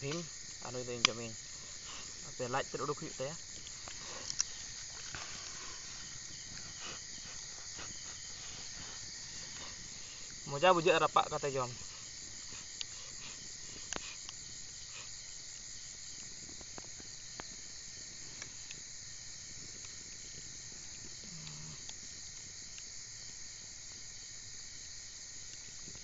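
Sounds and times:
crickets chirping: 0.0s - 26.0s
faint sharp clicks: 0.9s - 1.2s, 3.6s - 5.6s.

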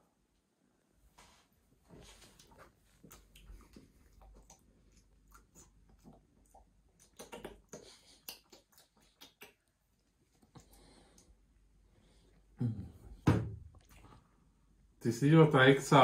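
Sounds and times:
sips and lip smacks: 2.4s - 11.4s.

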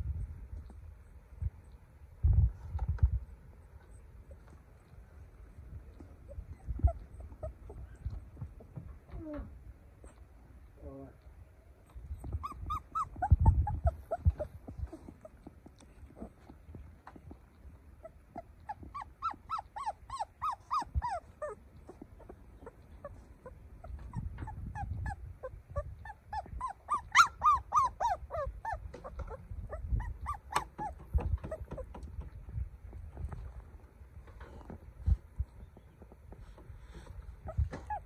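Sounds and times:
puppy whimpering: 5.9s - 10.2s, 11.9s - 32.2s, 36.8s - 38.0s.

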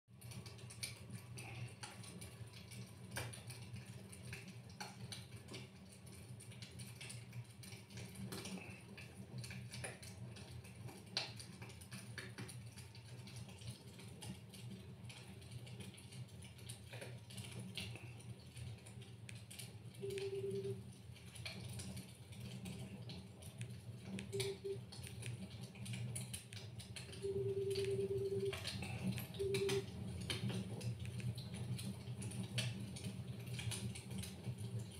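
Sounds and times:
fire popping and snapping: 0.1s - 34.9s
wood fire crackling: 0.1s - 34.9s
low hum: 27.1s - 30.3s.

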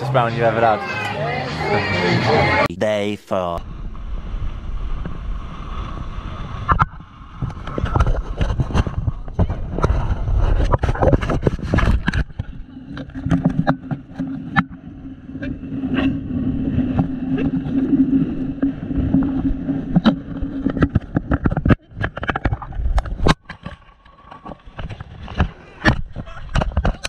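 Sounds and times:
wind on microphone: 3.6s - 23.4s.

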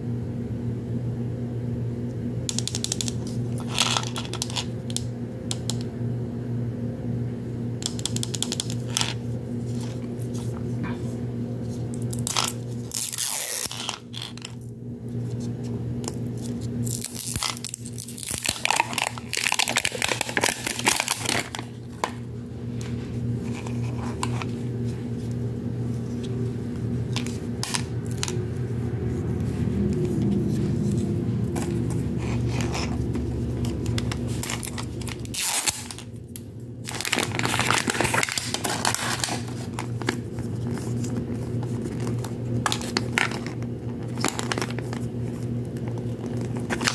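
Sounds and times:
shrink-wrap crinkling and tearing: 2.5s - 5.0s, 11.6s - 14.6s, 16.0s - 22.2s, 22.8s - 24.6s, 27.0s - 28.6s, 30.0s - 46.9s.

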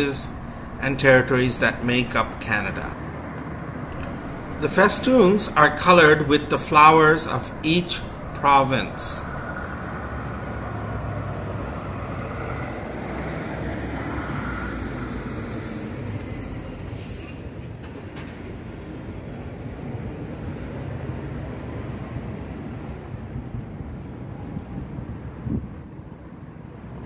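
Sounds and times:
traffic rumble: 0.0s - 16.6s.

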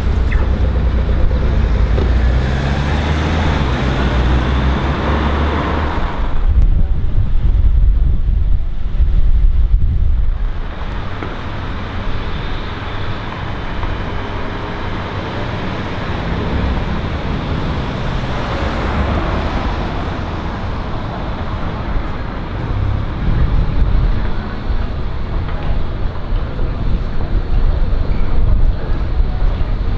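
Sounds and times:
cars driving past: 0.0s - 6.6s, 10.5s - 28.0s
tram rolling with low rumble: 0.0s - 29.9s.

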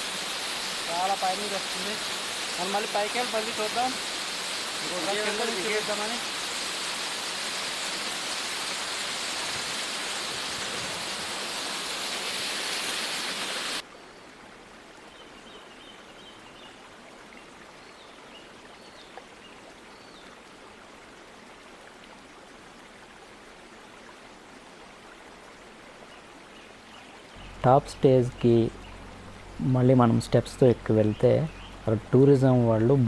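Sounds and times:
waterfall rushing over rocks: 0.0s - 13.8s.

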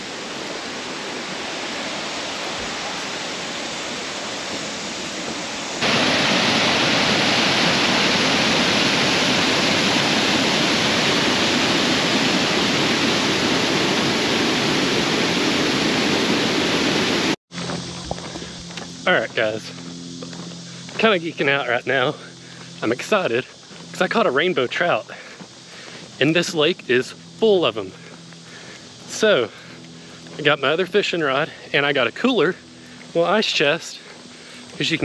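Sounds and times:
falling water rushing: 0.0s - 17.4s.

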